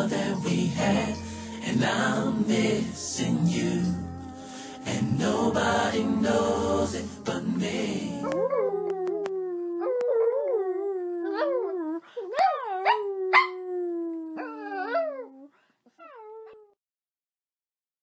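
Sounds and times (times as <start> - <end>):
small dog howling: 8.0 - 16.8.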